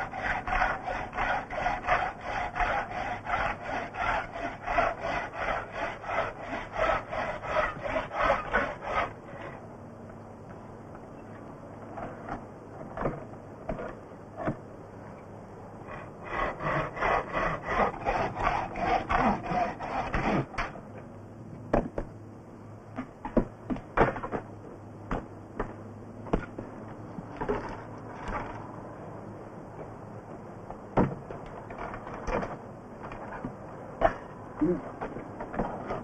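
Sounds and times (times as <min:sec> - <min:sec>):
steady low hum: 0:00.0 - 0:36.0
knocks and scraping: 0:22.9 - 0:28.7, 0:29.8 - 0:36.0.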